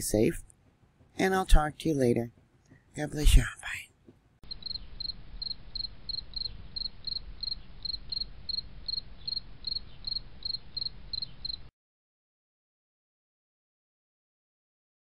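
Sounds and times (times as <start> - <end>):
insect chirping: 4.4 - 11.7.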